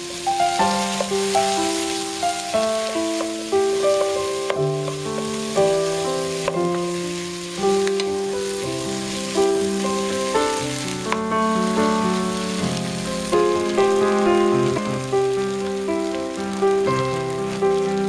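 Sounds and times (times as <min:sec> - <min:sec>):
wooden spoon stirring: 0:00.0 - 0:11.2
slow instrumental music: 0:00.0 - 0:18.0
vegetables sizzling in oil: 0:00.0 - 0:18.0.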